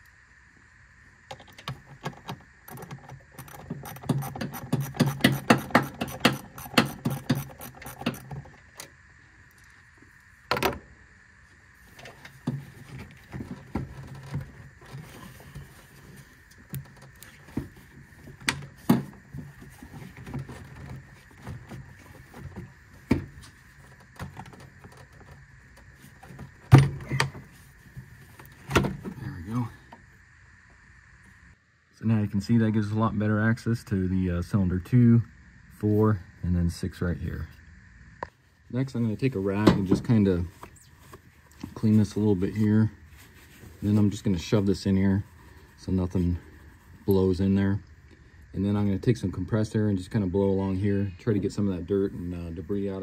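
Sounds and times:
ratchet clicking: 1.4 - 8.5.

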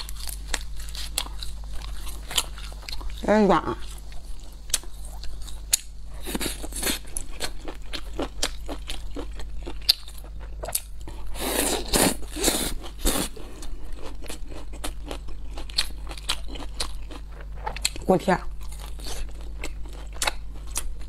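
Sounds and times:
chewing crispy food: 0.0 - 21.0.

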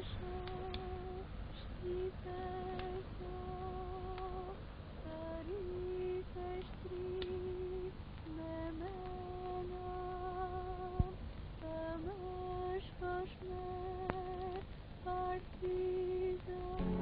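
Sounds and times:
soft lullaby-like melody: 0.0 - 17.0.

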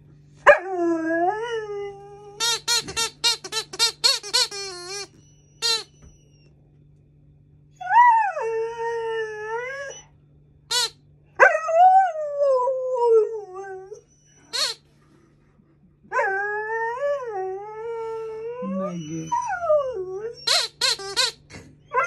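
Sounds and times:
puppy howling: 0.5 - 2.7, 7.8 - 10.1, 11.4 - 14.8, 16.1 - 20.8
squeaky toy squeaking: 2.4 - 6.0, 10.7 - 11.0, 14.5 - 14.8, 20.4 - 21.6.

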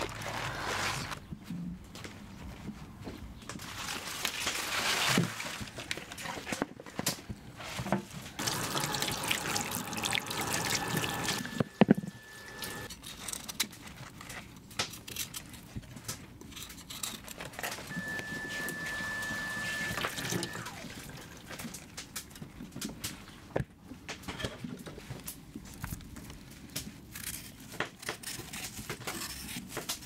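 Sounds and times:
vegetables rinsed by hand: 3.6 - 6.6, 7.6 - 12.9
thin high whistle: 17.9 - 20.8.

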